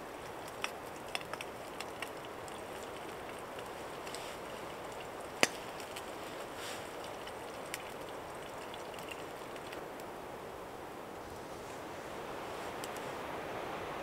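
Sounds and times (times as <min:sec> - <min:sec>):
wind through trees: 0:00.0 - 0:14.0
faint clicks: 0:12.8 - 0:13.1.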